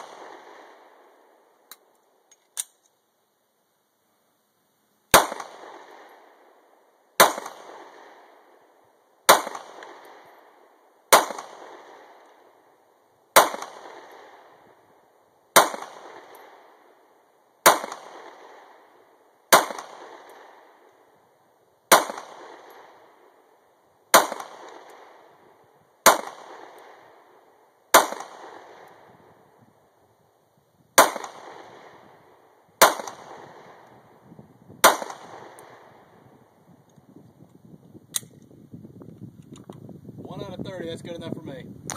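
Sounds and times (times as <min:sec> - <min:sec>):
pistol shots echoing: 0:00.0 - 0:01.4, 0:05.1 - 0:06.6, 0:07.2 - 0:12.7, 0:13.3 - 0:14.7, 0:15.5 - 0:17.0, 0:17.6 - 0:20.9, 0:21.9 - 0:29.4, 0:31.0 - 0:34.0, 0:34.8 - 0:36.2.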